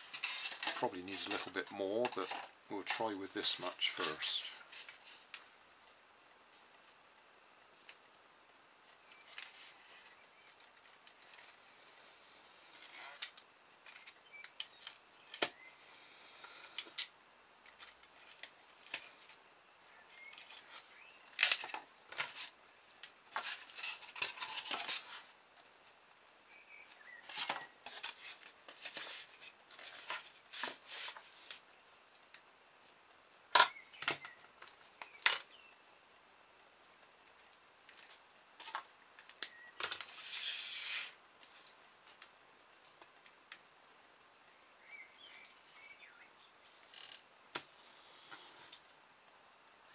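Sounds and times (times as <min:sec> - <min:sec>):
scraping rustles: 0:00.0 - 0:05.5, 0:09.1 - 0:11.6, 0:20.2 - 0:25.4, 0:26.9 - 0:32.0, 0:39.8 - 0:41.8.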